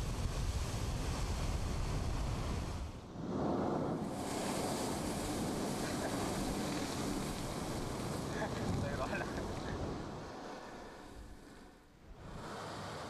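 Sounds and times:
blowhole spray rushing: 0:00.0 - 0:13.0
wind buffeting microphone: 0:00.0 - 0:13.0
surf breaking on rocks: 0:03.1 - 0:13.0.

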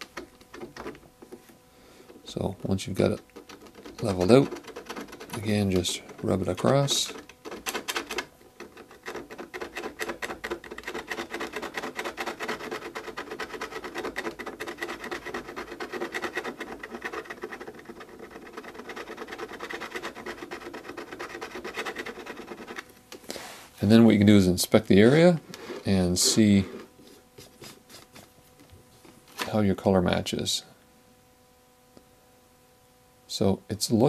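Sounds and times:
plastic card scraping wax: 0:02.9 - 0:23.4, 0:25.0 - 0:28.7.

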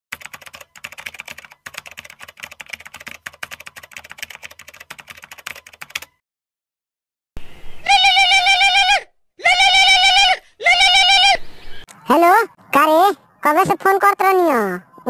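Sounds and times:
rapid keyboard typing: 0:00.1 - 0:06.2.

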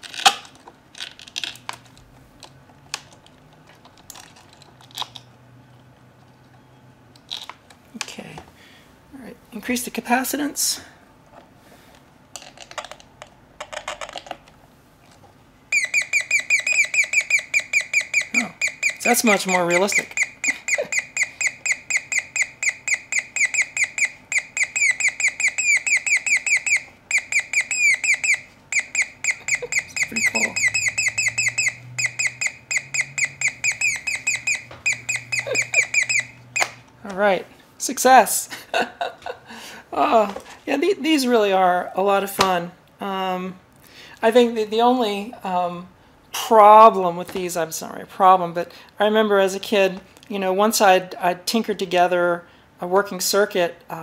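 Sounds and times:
electronic chirps falling in pitch: 0:15.8 - 0:36.8.

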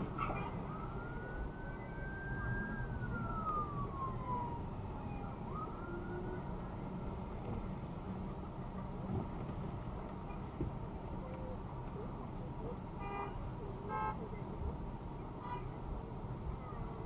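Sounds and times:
police siren wailing: 0:00.0 - 0:07.1
low rumble of traffic: 0:00.0 - 0:17.0.

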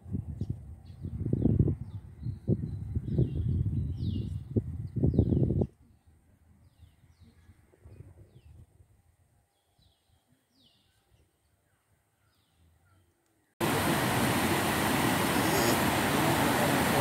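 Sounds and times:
waterfall rushing: 0:13.6 - 0:17.0.

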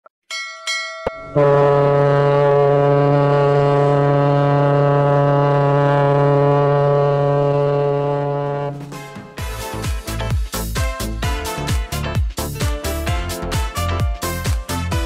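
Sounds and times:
ringing chime-like strikes: 0:00.3 - 0:01.5
ship's horn blast: 0:01.3 - 0:09.2.

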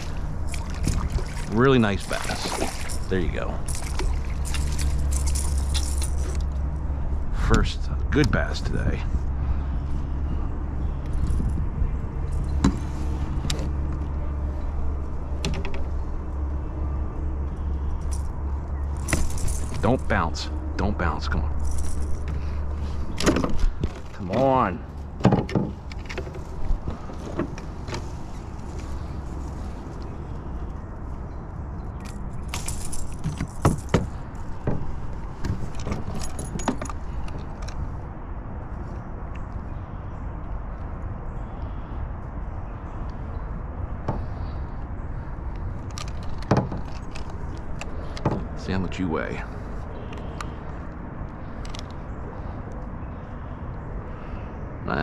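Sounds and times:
fishing tackle clicking and jingling: 0:00.0 - 0:07.2, 0:11.0 - 0:20.7, 0:21.5 - 0:25.2, 0:31.8 - 0:37.9, 0:45.6 - 0:48.6
steady low rumble: 0:00.0 - 0:55.0.

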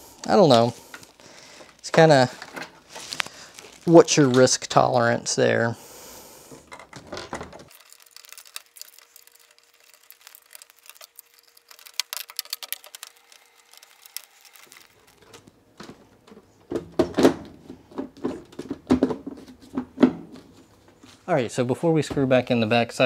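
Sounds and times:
plastic connectors clicking: 0:07.7 - 0:15.4.

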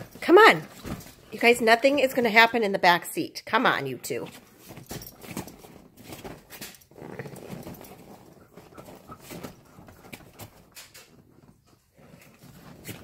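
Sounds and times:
dogs' paws scrabbling on seat: 0:04.3 - 0:13.0.

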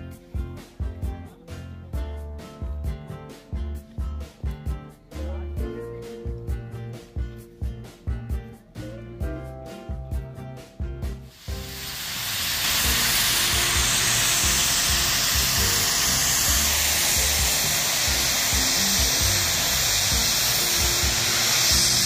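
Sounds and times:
snow guns hissing: 0:11.3 - 0:22.0.

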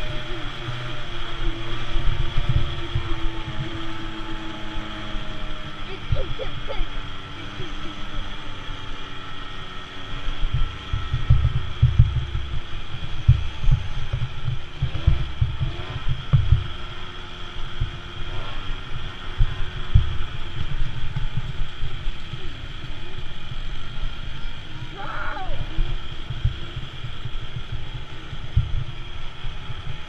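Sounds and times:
quad engine running hard: 0:00.0 - 0:30.0
wind buffeting on microphone: 0:09.4 - 0:17.0.

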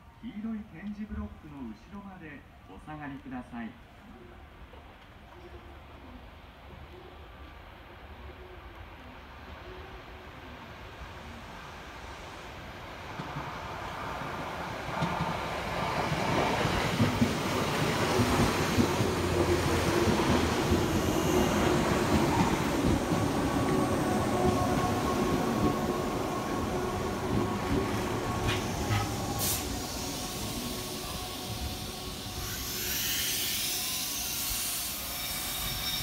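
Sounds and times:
train wheels rumbling on rails: 0:13.0 - 0:36.0
train wheel squeal: 0:20.5 - 0:25.4, 0:28.4 - 0:36.0.

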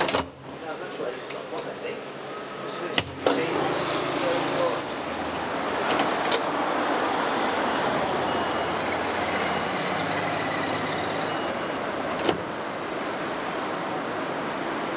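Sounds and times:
road traffic and tram noise: 0:00.0 - 0:14.9
faint high whining tones: 0:07.2 - 0:12.1.

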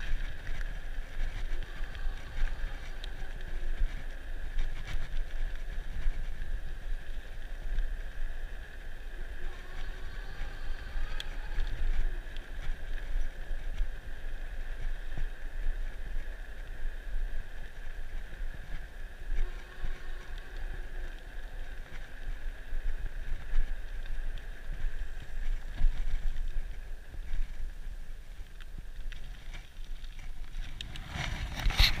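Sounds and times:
electric bike motor whine: 0:00.0 - 0:28.2
wind buffeting microphone: 0:00.0 - 0:32.0.

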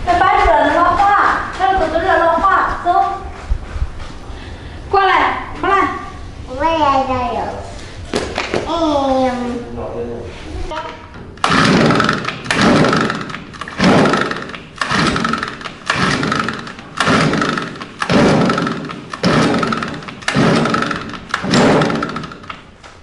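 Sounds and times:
engine recoil cord pulls: 0:11.4 - 0:22.7.

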